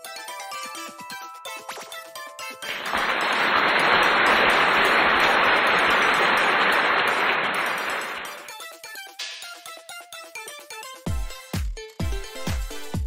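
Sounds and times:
audience applause: 2.7 - 8.5.

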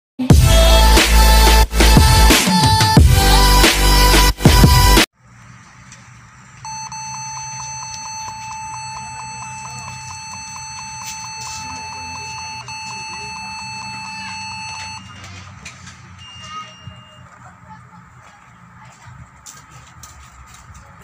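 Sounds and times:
laptop high electronic beep: 6.6 - 15.4, 16.2 - 17.4.

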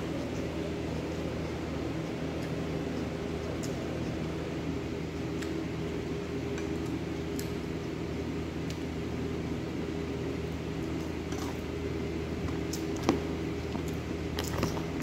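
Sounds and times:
faint eating clicks: 0.0 - 4.4, 6.5 - 7.6
appliance mechanical hum: 0.0 - 15.0.

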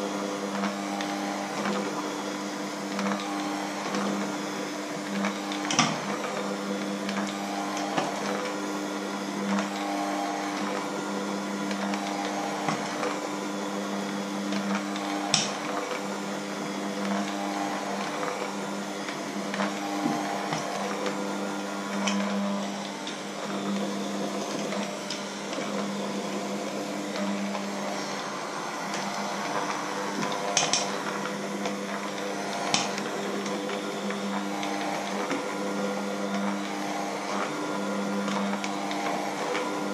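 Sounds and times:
electric hand mixer running: 0.0 - 39.9.

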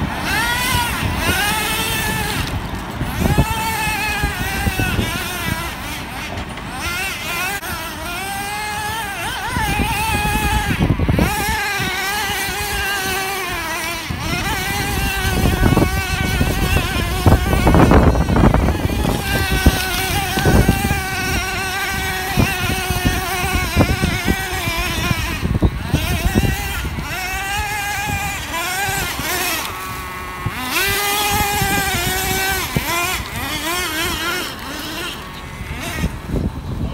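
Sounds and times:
small engine revving high: 0.0 - 36.9.

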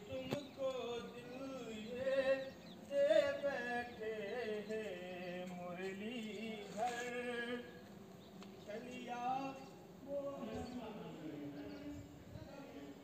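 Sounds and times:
person singing chant-like melody: 0.0 - 7.8, 8.7 - 13.0.

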